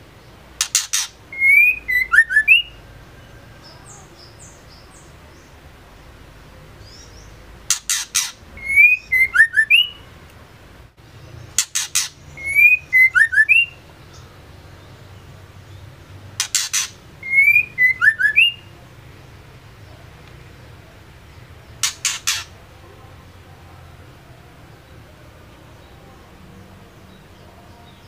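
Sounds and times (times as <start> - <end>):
bird calling: 0.6 - 5.0, 6.8 - 10.1, 11.4 - 14.3, 16.4 - 18.8, 21.7 - 22.7.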